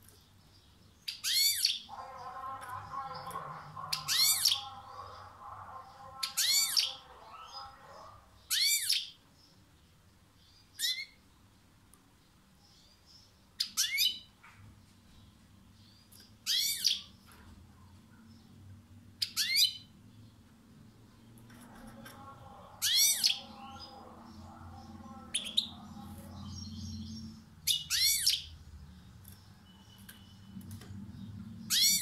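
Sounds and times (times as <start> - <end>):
goldfinch calls: 1.1 - 9.1, 22.4 - 28.5, 31.6 - 32.0.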